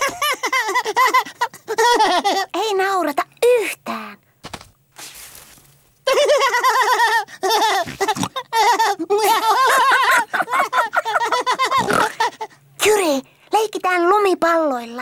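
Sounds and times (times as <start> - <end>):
cartoon children laughing: 0.0 - 2.6, 6.1 - 12.6.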